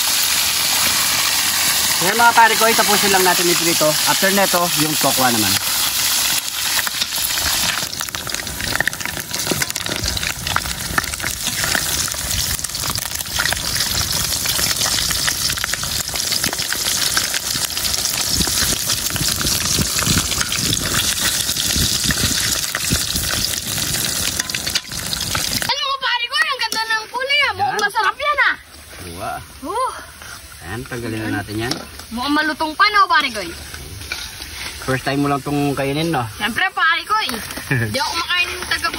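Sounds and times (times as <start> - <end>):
deep-frying sizzle with pops: 0.0 - 38.9
metal ladle stirring oil: 3.3 - 25.6, 33.2 - 34.9.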